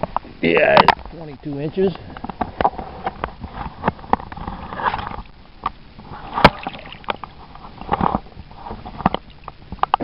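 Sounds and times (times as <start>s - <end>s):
water splashing and sloshing: 6.0s - 10.0s.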